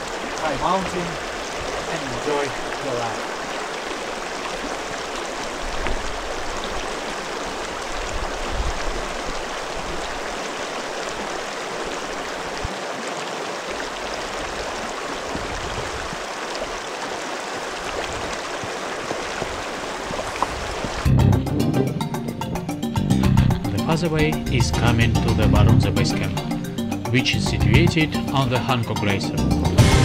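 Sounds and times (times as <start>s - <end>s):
stream flowing over rocks: 0.0s - 21.1s.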